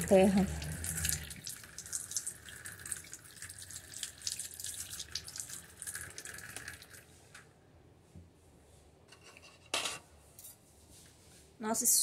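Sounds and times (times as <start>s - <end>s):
tap water running and splashing: 0.0s - 7.1s.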